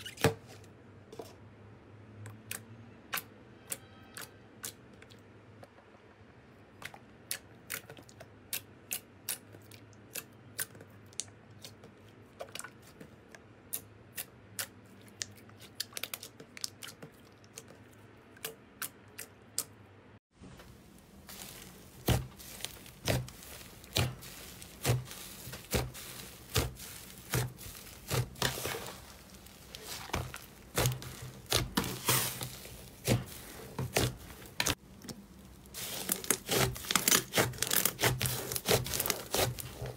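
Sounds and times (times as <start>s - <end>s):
slime crackling squishes: 13.7s - 19.7s, 20.6s - 39.9s.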